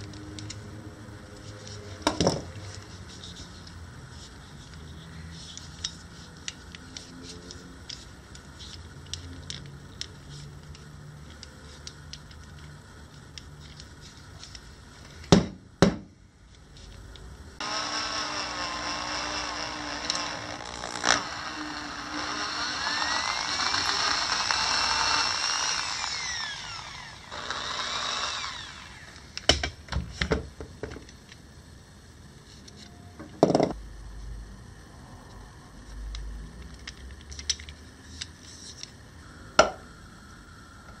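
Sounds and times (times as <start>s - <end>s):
electric drill boring into wood: 17.6s - 29.4s.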